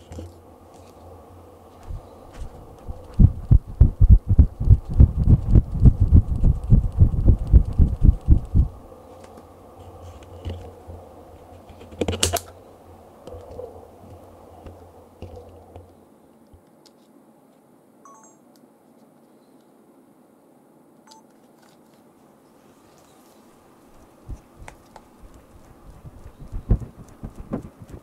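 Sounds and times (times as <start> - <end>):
low rhythmic throbbing: 2.9 - 8.8.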